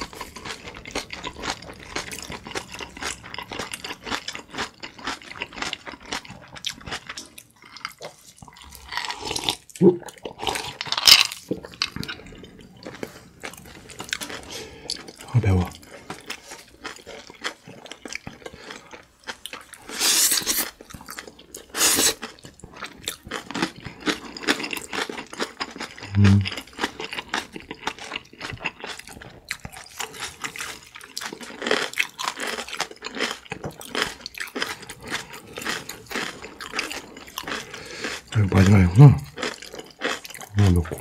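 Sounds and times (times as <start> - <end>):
chewing and crunching: 0.0 - 41.0
loud slurps: 19.9 - 20.7, 21.7 - 22.2.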